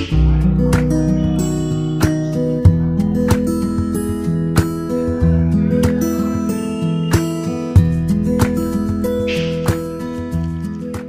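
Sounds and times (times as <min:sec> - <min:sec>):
held melodic notes: 0:00.0 - 0:11.0.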